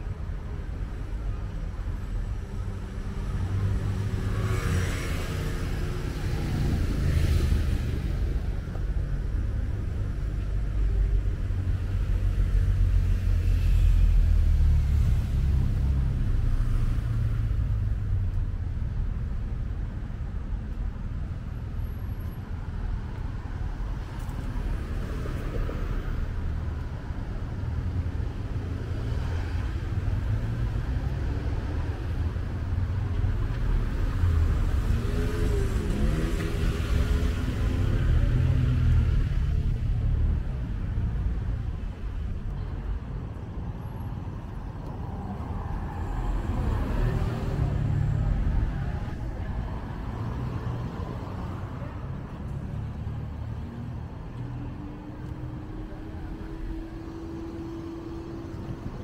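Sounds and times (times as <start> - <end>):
cars driving past: 23.0 - 59.0.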